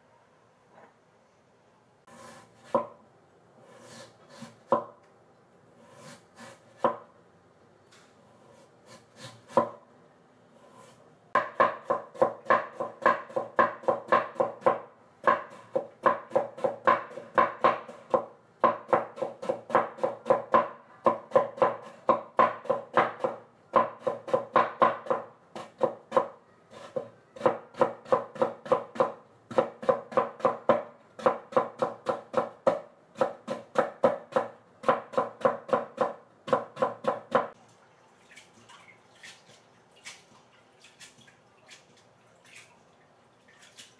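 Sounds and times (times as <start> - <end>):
knife chopping on wooden board: 11.4 - 37.6.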